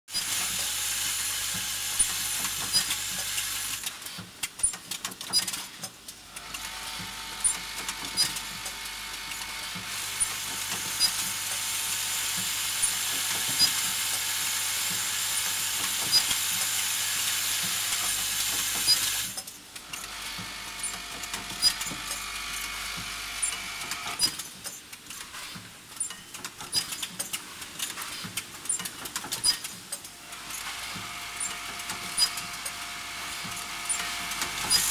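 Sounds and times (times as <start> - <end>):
welding machine hiss: 0.1 - 3.9, 6.8 - 19.4, 33.4 - 34.9
pneumatic mechanism clacking: 0.1 - 6.7, 7.4 - 20.1, 20.8 - 32.8, 33.4 - 34.9.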